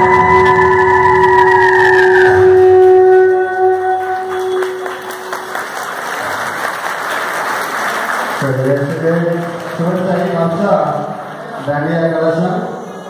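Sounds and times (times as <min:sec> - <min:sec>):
held music note: 0:00.0 - 0:05.7
audience applause: 0:01.8 - 0:11.6.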